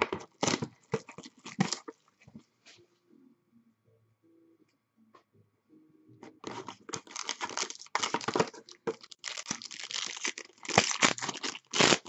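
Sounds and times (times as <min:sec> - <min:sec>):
foil wrapper crinkling: 0:06.4 - 0:12.0.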